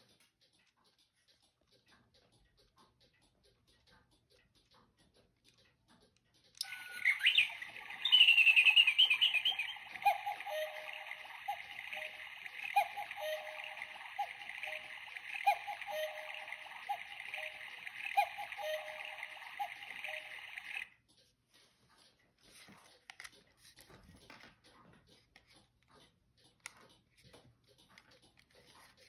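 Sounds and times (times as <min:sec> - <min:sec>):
birdsong chirping: 0:06.6 - 0:20.9
recorded cuckoo call: 0:06.6 - 0:20.9
running water: 0:06.6 - 0:20.9.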